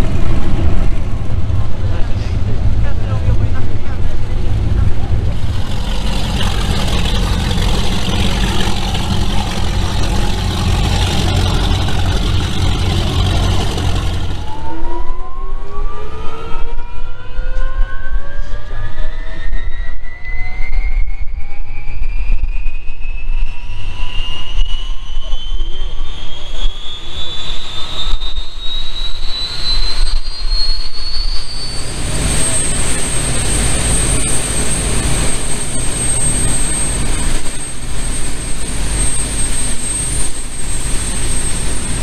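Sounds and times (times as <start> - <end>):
powerboat engines running rough: 0.0 - 14.6, 31.6 - 42.0
turbine engines whining: 0.0 - 15.7, 22.8 - 42.0.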